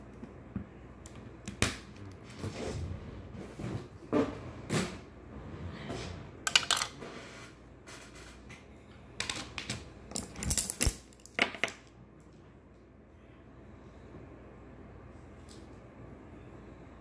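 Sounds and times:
makeup items clattering on table: 6.5 - 7.0.

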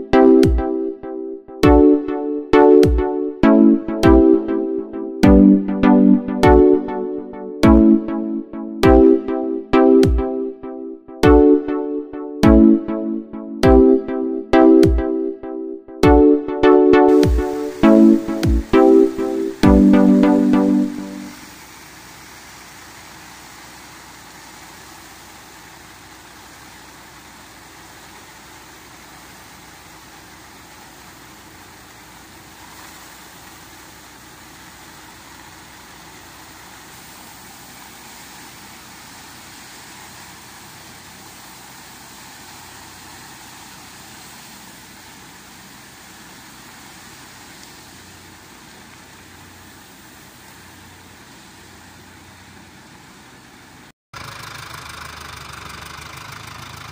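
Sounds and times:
grain pouring hiss: 17.1 - 56.9
tractor diesel engine running: 50.8 - 56.9.

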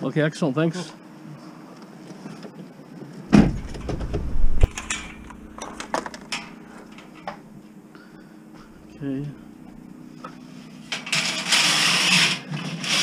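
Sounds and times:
van door slamming: 3.3 - 6.2
clicks and knocks: 3.3 - 7.4.

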